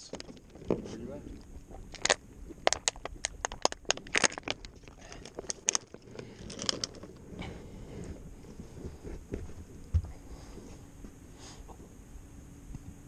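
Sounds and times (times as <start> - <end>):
sharp clicks and crackles: 0.0 - 7.3.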